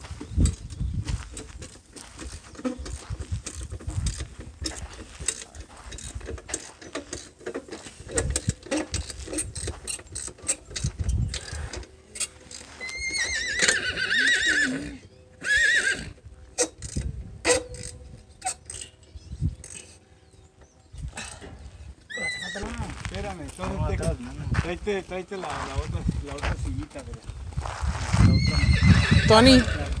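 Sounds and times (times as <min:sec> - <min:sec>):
hand tools clicking on metal: 0:01.3 - 0:13.0, 0:16.6 - 0:20.0
horse whinnying: 0:12.8 - 0:16.2, 0:22.1 - 0:22.8, 0:28.2 - 0:30.0.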